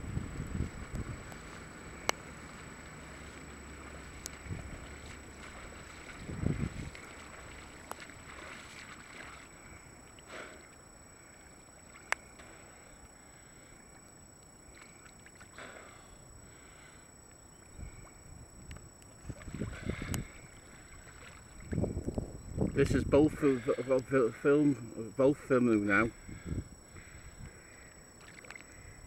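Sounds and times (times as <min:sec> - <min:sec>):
water sloshing against camera: 0:00.6 - 0:28.9
water splashing and lapping: 0:00.8 - 0:22.8, 0:27.8 - 0:29.0
swimming stroke splashes: 0:02.0 - 0:10.8, 0:19.3 - 0:21.8.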